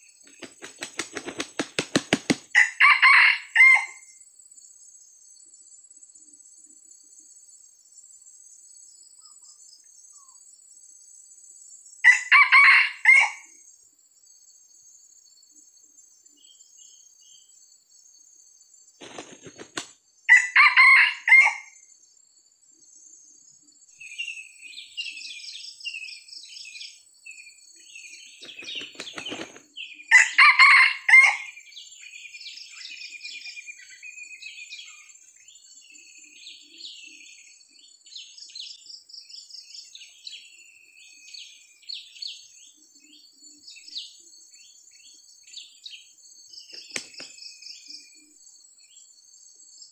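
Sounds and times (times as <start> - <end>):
small birds chirping: 0.0 - 2.6, 4.6 - 11.9, 14.2 - 20.2, 21.4 - 30.2, 31.2 - 49.9
high insect drone: 0.0 - 30.2
rooster flapping wings: 0.2 - 2.6, 19.0 - 20.0, 28.4 - 29.7, 46.8 - 47.4
rooster crowing: 2.6 - 4.1, 12.0 - 13.5, 20.3 - 21.8, 30.1 - 31.6.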